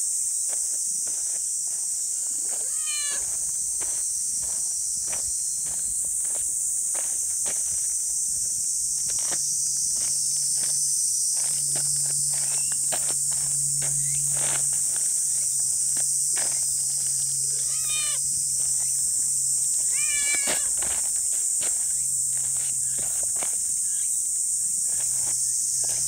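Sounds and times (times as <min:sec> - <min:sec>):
high insect drone: 0:00.0 - 0:26.0
footsteps on dry leaves: 0:00.5 - 0:26.0
cat meowing: 0:02.6 - 0:03.2, 0:17.6 - 0:18.2, 0:19.9 - 0:20.7.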